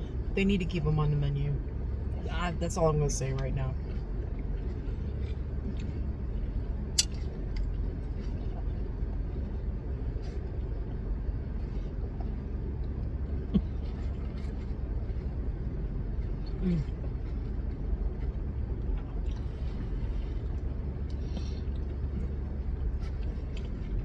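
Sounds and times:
car engine rumble inside cabin: 0.0 - 24.0.

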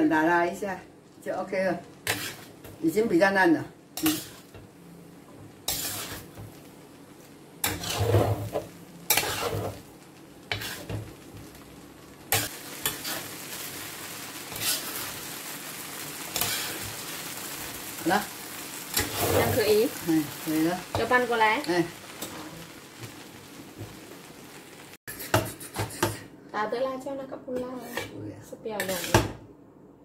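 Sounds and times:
noodles sizzling: 0.0 - 29.4
metal spatula scraping a pan: 2.0 - 2.7, 4.0 - 4.6, 5.6 - 6.5, 7.6 - 9.9, 10.5 - 11.2, 12.3 - 13.6, 14.4 - 15.4, 16.3 - 17.5, 18.8 - 21.3, 27.6 - 28.2, 28.8 - 29.3.

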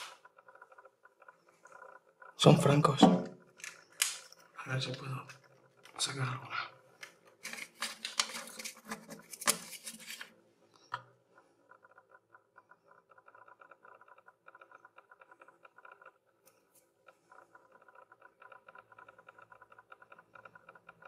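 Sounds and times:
fast pattering ticks: 11.4 - 21.0.

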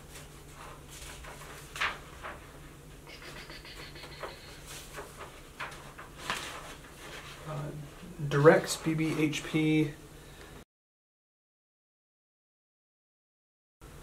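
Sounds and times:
clicks and rustles of handling paper: 0.0 - 9.6.

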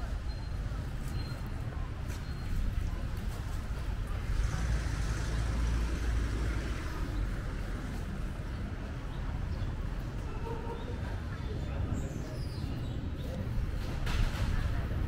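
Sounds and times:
vehicle passing: 4.1 - 8.1.

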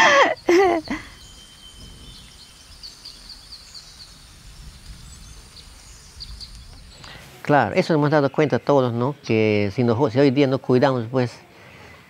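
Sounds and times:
high bird chirps: 0.0 - 7.4
low steady hiss: 0.0 - 12.0.

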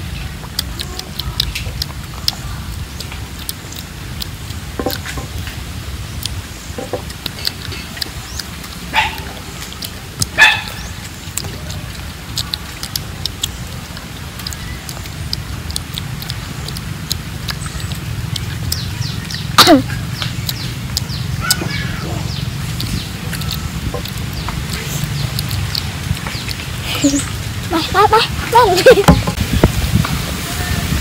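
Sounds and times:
eating sounds: 0.0 - 31.0
low wind rumble: 0.0 - 31.0
spoons scraping fruit flesh: 22.3 - 27.4.

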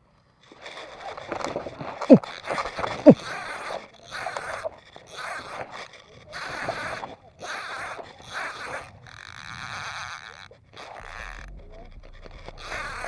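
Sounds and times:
hard breathing: 10.9 - 13.0.

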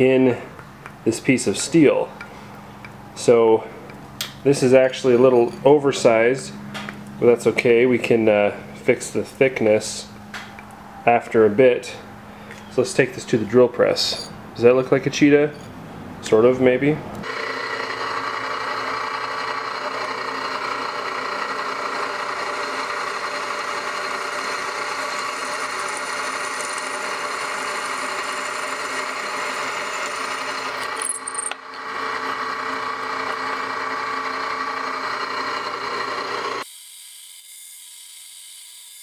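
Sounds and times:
drill bit cutting steel: 17.2 - 39.0
drill press whine: 17.2 - 39.0.

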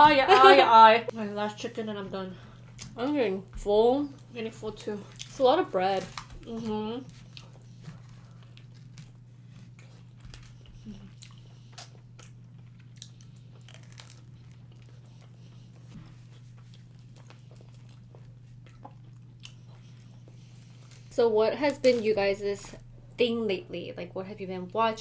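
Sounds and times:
faint low hum: 0.0 - 25.0
chewing and crunching food: 2.4 - 22.1.

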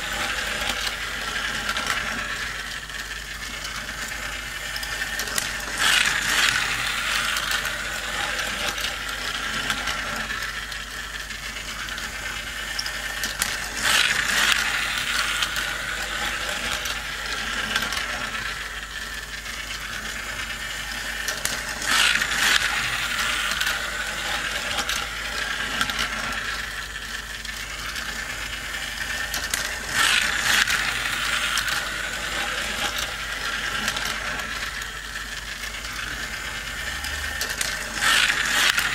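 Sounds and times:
toy track motor and gears rattling: 0.0 - 38.9.

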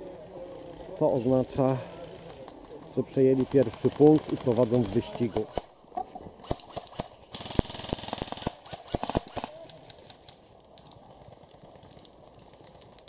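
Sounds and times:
airsoft rifle shots: 3.4 - 5.8, 6.4 - 9.7
faint distant shots: 6.4 - 10.1.

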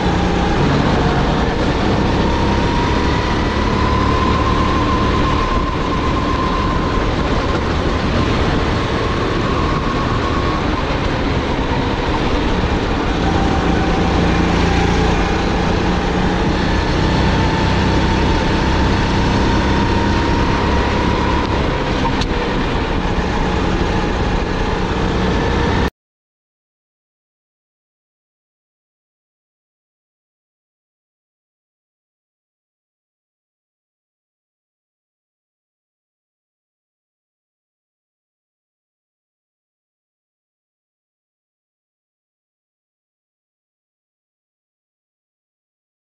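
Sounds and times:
kart engine running hard: 0.0 - 25.9.

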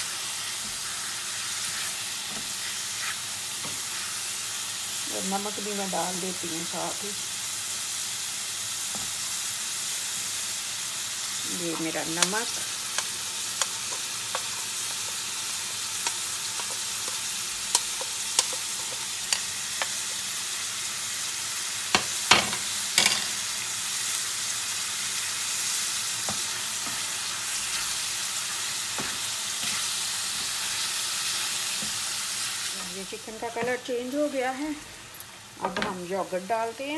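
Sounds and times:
chicken sizzling in hot oil: 0.0 - 36.9.

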